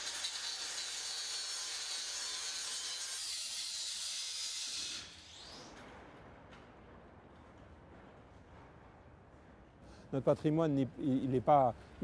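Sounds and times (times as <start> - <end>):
angle grinder cutting metal: 0.0 - 5.6.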